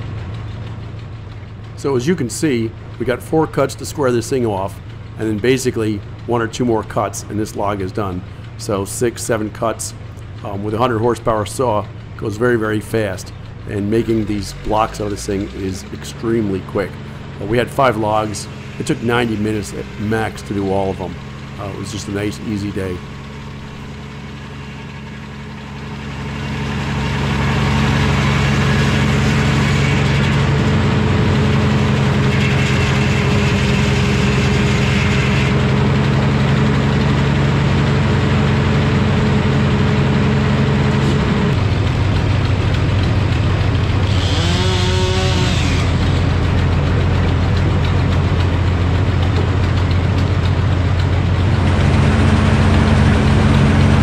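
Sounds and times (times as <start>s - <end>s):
circular saw cutting log: 1.7s - 54.0s
brief saw squeal: 32.2s - 35.6s, 44.1s - 46.2s.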